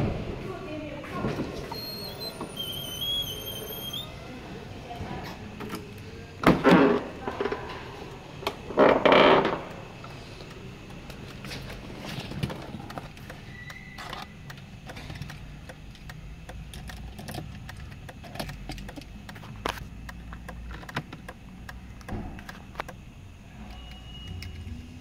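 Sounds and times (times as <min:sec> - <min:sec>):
faint high tone: 0:01.7 - 0:04.3
clicks and taps in car: 0:14.5 - 0:23.0.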